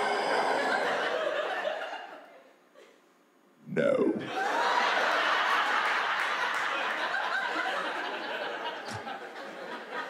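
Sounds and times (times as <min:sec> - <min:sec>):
audience laughter: 0:00.0 - 0:02.3, 0:04.2 - 0:10.0.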